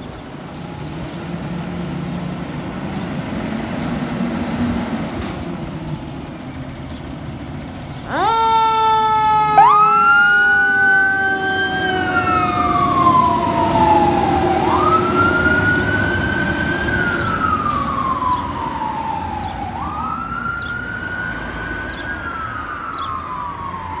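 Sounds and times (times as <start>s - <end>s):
diesel engine running: 0.0s - 20.0s
deep siren tone: 8.0s - 24.0s
electronic siren wail: 8.0s - 24.0s.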